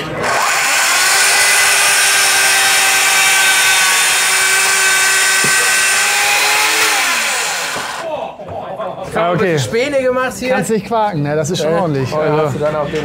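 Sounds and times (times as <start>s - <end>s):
chain saw motor: 0.0s - 8.0s.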